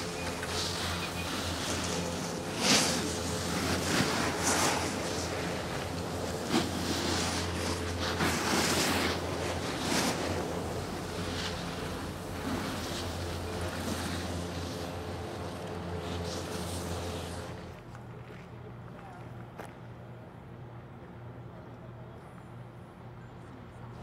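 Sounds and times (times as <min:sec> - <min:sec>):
skis scraping over snow: 0:00.0 - 0:17.9
steady low rumble: 0:00.0 - 0:21.7.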